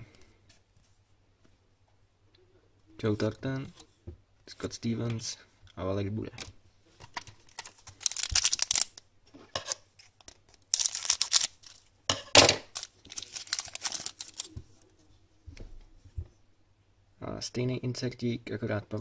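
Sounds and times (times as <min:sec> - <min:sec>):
foil wrapper tearing and crinkling: 0:07.4 - 0:09.0, 0:10.0 - 0:11.9, 0:12.6 - 0:14.5.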